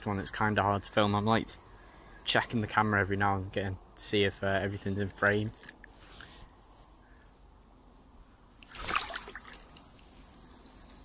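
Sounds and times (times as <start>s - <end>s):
faint steady hiss: 0.0s - 11.0s
rustling swish of handling: 5.5s - 11.0s.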